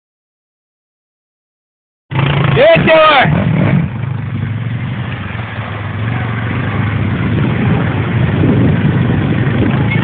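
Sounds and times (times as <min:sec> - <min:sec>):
quad bike engine running: 0:02.1 - 0:10.0.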